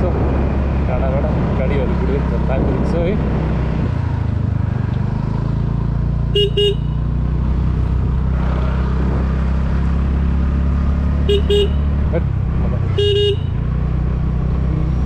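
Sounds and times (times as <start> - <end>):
motorcycle engine running: 0.0 - 15.0
horn short beeps: 6.4 - 7.0, 11.3 - 11.9.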